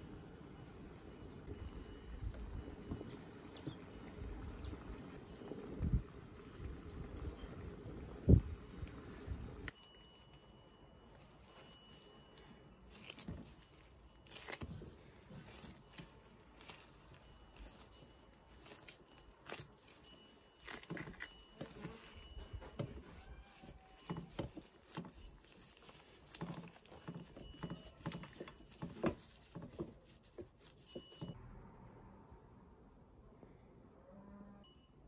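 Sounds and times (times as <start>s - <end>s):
rustling: 9.9s - 31.4s
plastic glove crinkling: 11.1s - 31.2s.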